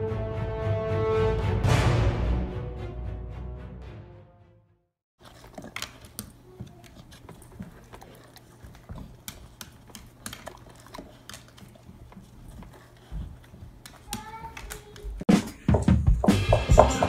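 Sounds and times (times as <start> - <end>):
music: 0.0 - 4.9, 15.3 - 17.0
dog moving with clicks and taps: 5.2 - 15.2.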